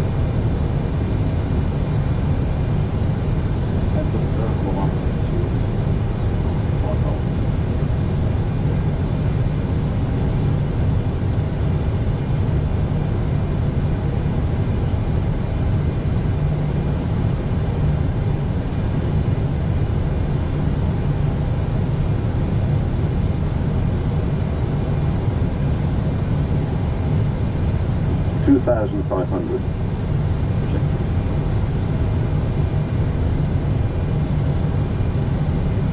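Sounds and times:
airflow and jet engines rumbling: 0:00.0 - 0:35.9.

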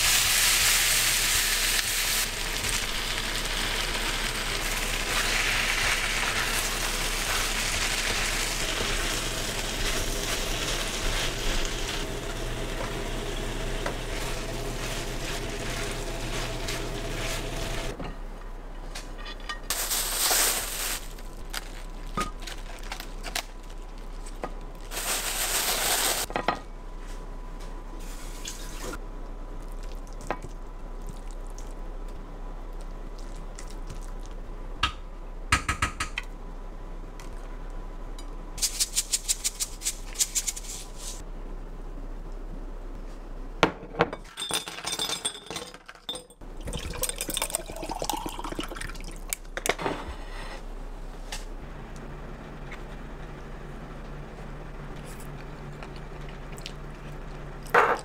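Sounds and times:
utensils clinking on dishes: 0:44.1 - 0:46.4.

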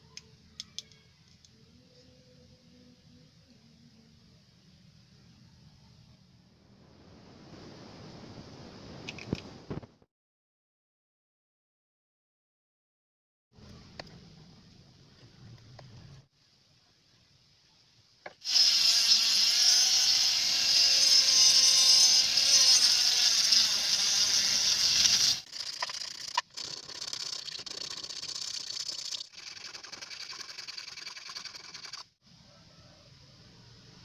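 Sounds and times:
rotary grinder whining: 0:18.4 - 0:27.6.

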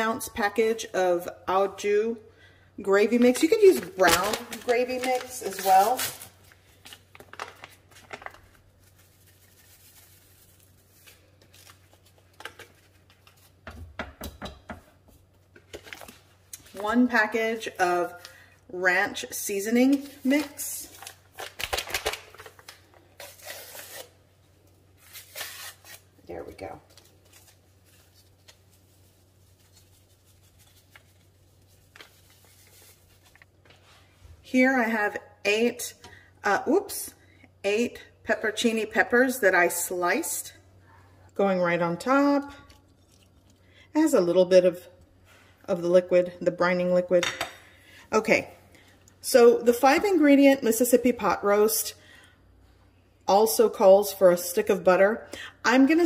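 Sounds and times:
paper packet rustling and crinkling: 0:03.0 - 0:13.6, 0:15.6 - 0:16.8, 0:19.8 - 0:24.1, 0:25.0 - 0:34.1.

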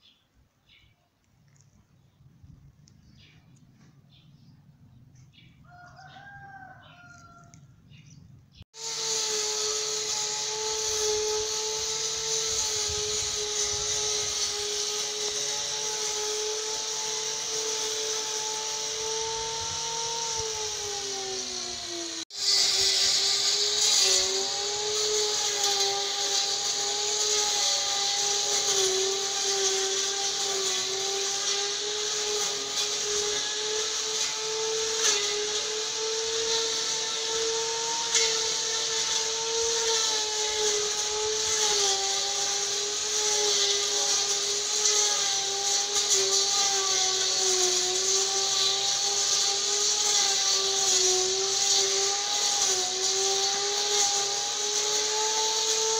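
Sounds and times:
blade cutting grass: 0:01.5 - 0:04.5, 0:08.7 - 0:55.9
brush cutter high whine: 0:08.7 - 0:55.9.

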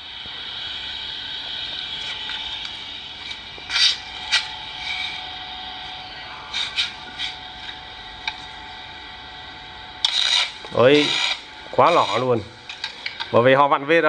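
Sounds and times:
welding machine hum and whine: 0:00.0 - 0:14.0.

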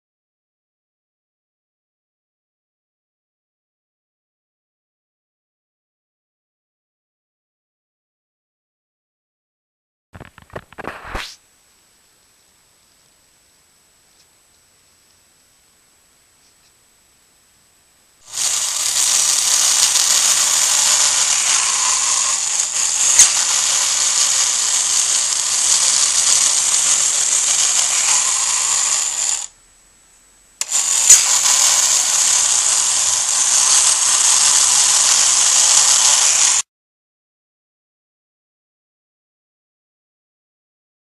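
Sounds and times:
wind-up toy motor whirring: 0:18.2 - 0:29.5, 0:30.6 - 0:36.6
sharp clicks: 0:30.6 - 0:36.6.

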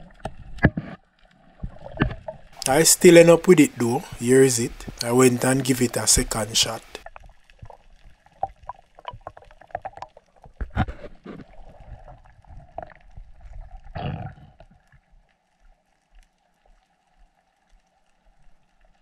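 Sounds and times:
underwater clicks and knocks: 0:00.0 - 0:01.0, 0:01.6 - 0:02.5, 0:08.4 - 0:11.6
faint steady hum: 0:02.6 - 0:07.8.

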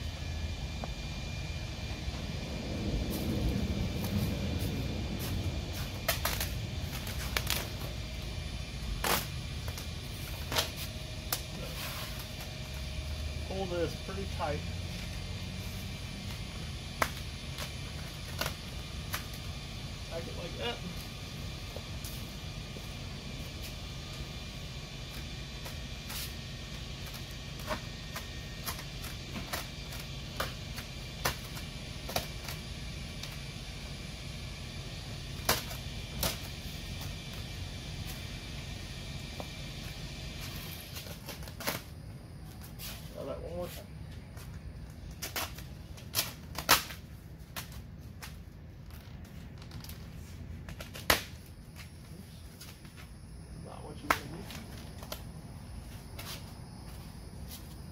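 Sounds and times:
low background rumble: 0:00.0 - 0:42.6
steady low hum: 0:00.0 - 0:57.9
vinyl film crackling and snapping: 0:06.0 - 0:07.8, 0:09.0 - 0:11.5, 0:45.2 - 0:51.4.

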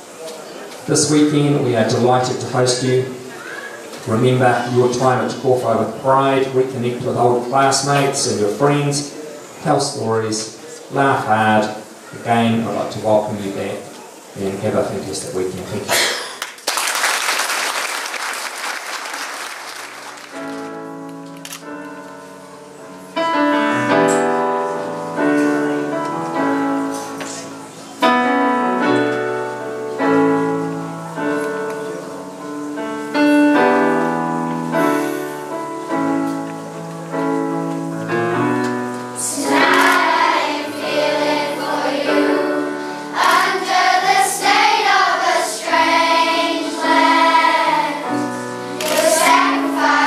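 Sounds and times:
piano chords: 0:00.0 - 0:15.8, 0:18.8 - 0:50.0
audience applauding: 0:16.4 - 0:20.8.

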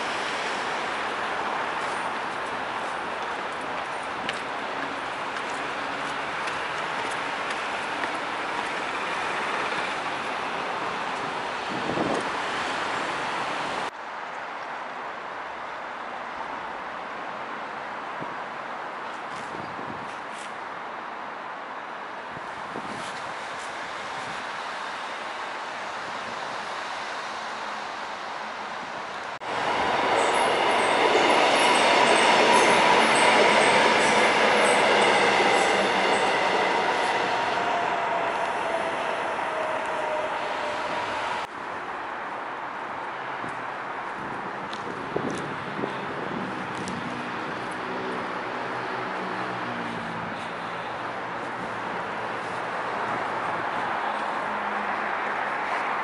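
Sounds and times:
electric train passing: 0:00.0 - 0:13.9, 0:29.4 - 0:41.5
city road traffic hum: 0:00.0 - 0:56.0.

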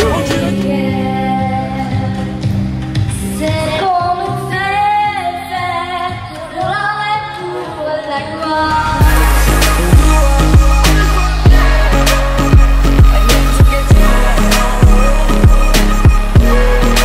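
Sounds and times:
heavy beat with deep bass: 0:00.0 - 0:00.8, 0:09.0 - 0:17.0
girl singing: 0:00.0 - 0:02.3, 0:03.2 - 0:17.0.

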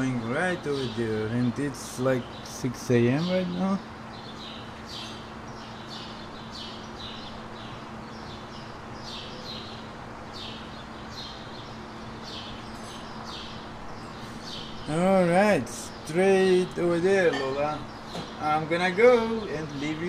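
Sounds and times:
birds chirping: 0:00.0 - 0:20.0
faint low hum: 0:00.0 - 0:20.0.

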